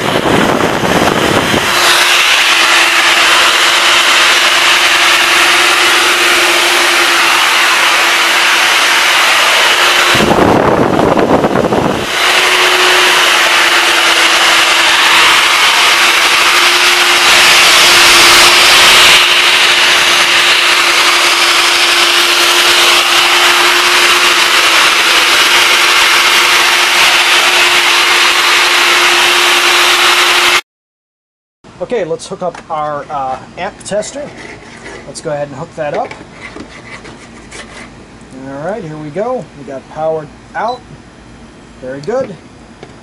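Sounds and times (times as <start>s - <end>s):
electric ducted fans whining: 0.0s - 30.6s, 31.7s - 43.0s
loud rush of air: 0.0s - 30.6s.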